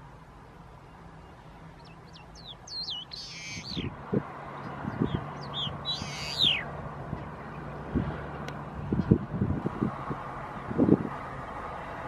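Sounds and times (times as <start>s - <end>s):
songbird calling: 0.7s - 7.9s.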